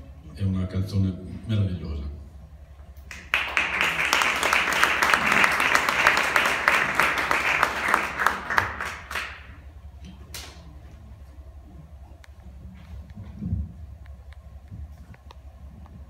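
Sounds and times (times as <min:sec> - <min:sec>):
audience applauding: 0:03.1 - 0:09.6.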